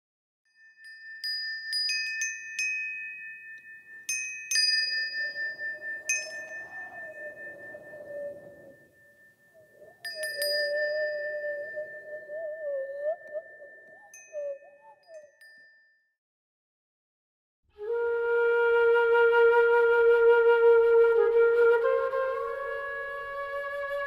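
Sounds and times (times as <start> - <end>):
chime strikes: 0.5 - 11.7
high sustained tone: 4.6 - 15.3
low wavering drone: 5.2 - 9.0.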